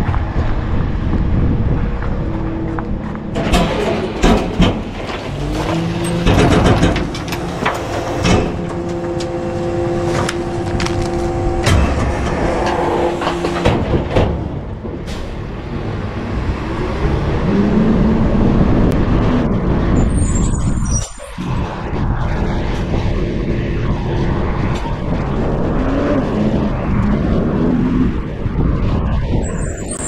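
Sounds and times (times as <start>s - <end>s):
garbage truck whining hum: 0.1s - 21.0s
truck engine revving: 0.3s - 22.0s
metallic knocks and clanks: 2.3s - 15.3s.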